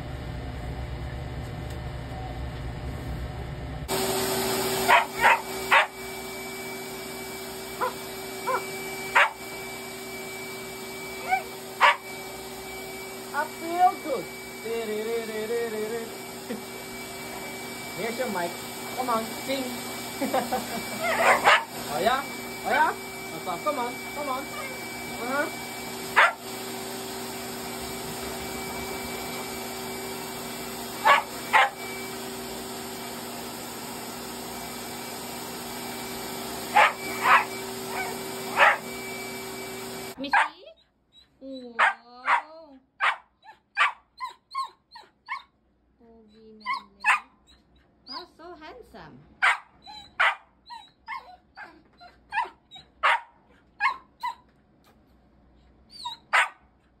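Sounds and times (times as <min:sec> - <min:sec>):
pet grooming dryer blowing: 0:01.1 - 0:40.5
puppy barking: 0:04.8 - 0:06.0, 0:07.8 - 0:09.5, 0:11.2 - 0:12.1, 0:21.0 - 0:21.8, 0:24.5 - 0:24.8, 0:26.1 - 0:26.4, 0:31.0 - 0:31.8, 0:36.7 - 0:38.9, 0:40.2 - 0:40.8, 0:41.8 - 0:45.5, 0:46.6 - 0:47.5, 0:49.4 - 0:54.4, 0:56.0 - 0:56.7.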